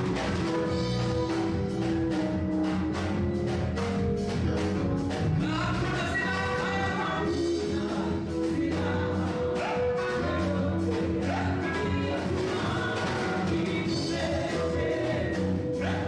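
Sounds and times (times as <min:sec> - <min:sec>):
backing music with steady beat: 0:00.0 - 0:16.0
singers on microphones: 0:05.3 - 0:16.0.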